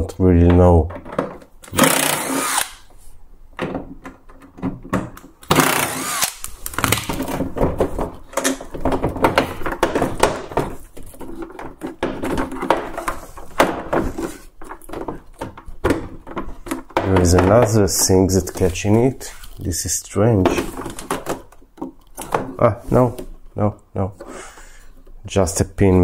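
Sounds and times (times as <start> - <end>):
clicks knocks and rattles: 0.4 - 1.7, 3.5 - 5.7, 6.6 - 19.1, 20.4 - 22.6
cordless drill running: 1.8 - 2.8, 5.5 - 6.4.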